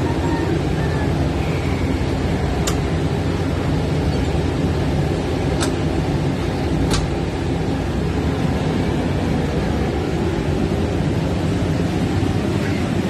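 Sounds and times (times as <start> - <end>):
generator engine running: 0.0 - 13.0
metallic clicks of door latch: 6.9 - 7.2.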